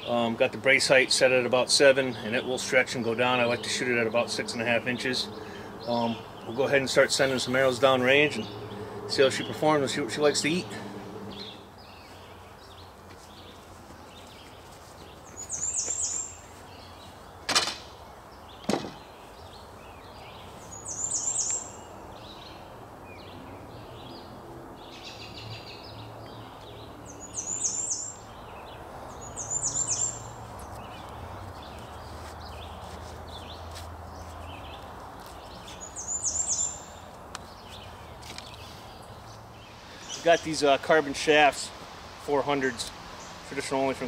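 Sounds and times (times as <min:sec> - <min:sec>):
outdoor background hum: 0:00.0 - 0:44.0
songbird chirping: 0:00.0 - 0:44.0.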